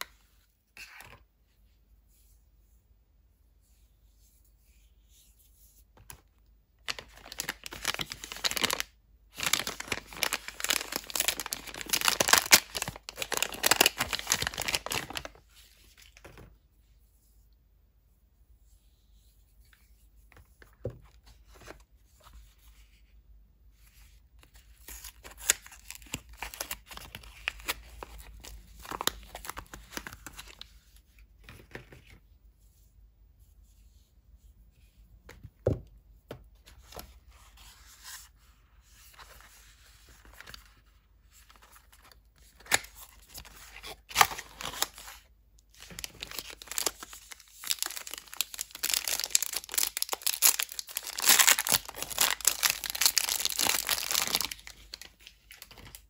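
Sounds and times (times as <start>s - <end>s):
paper wrapper crinkling: 6.8s - 16.5s, 24.8s - 30.7s, 39.1s - 56.0s.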